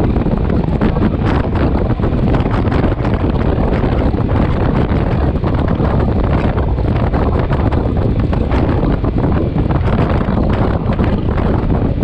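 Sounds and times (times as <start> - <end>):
road noise: 0.0 - 12.0
wind buffeting microphone: 0.0 - 12.0.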